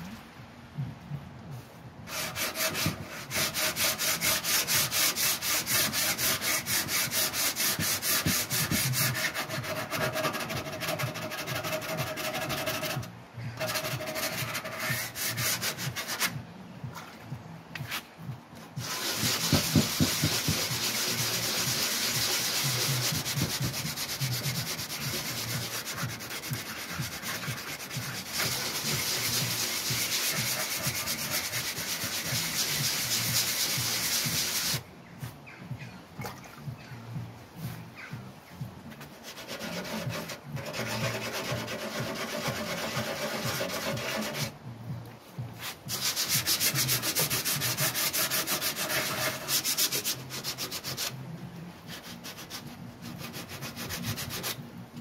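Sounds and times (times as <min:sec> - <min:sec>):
sanding paper on metal: 0:02.1 - 0:16.4, 0:18.8 - 0:34.8, 0:39.2 - 0:44.6, 0:45.6 - 0:51.2, 0:51.9 - 0:54.6.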